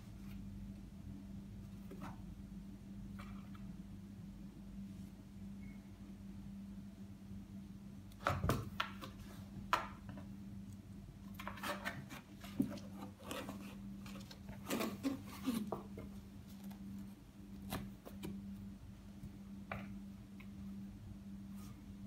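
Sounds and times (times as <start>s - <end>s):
steady low hum: 0.0s - 22.0s
cats scratching cardboard box: 11.4s - 17.0s.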